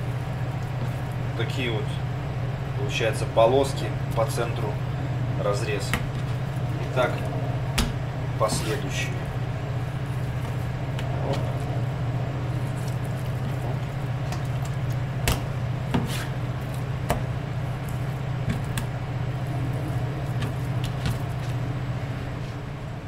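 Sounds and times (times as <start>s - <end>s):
steady low hum: 0.0s - 23.0s
knife slicing meat: 15.9s - 18.8s.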